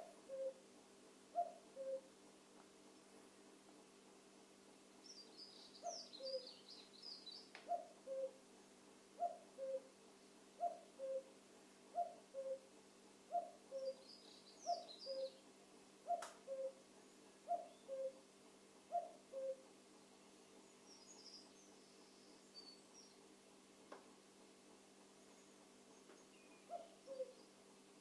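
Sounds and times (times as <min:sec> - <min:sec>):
cuckoo calling: 0:00.0 - 0:00.6, 0:01.3 - 0:02.1, 0:05.8 - 0:06.6, 0:07.6 - 0:08.4, 0:09.2 - 0:09.9, 0:10.6 - 0:11.3, 0:11.9 - 0:12.7, 0:13.3 - 0:15.4, 0:16.0 - 0:16.8, 0:17.4 - 0:18.2, 0:18.9 - 0:19.6, 0:26.5 - 0:27.4
small bird chirping: 0:05.0 - 0:08.3, 0:13.3 - 0:15.4, 0:20.7 - 0:23.2, 0:25.3 - 0:27.6.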